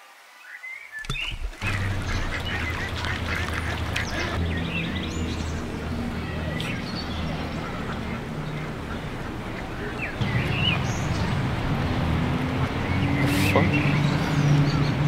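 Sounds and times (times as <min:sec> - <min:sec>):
ducks quacking: 0:01.2 - 0:15.0.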